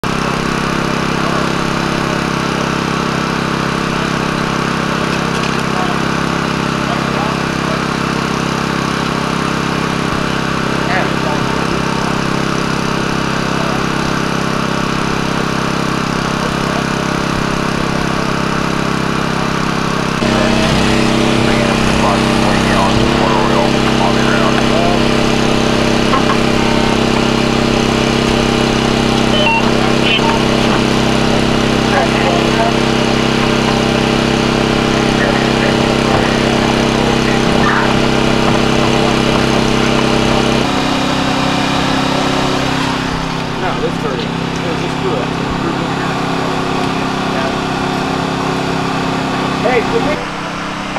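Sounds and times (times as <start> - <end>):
engine idling: 0.0 - 50.9.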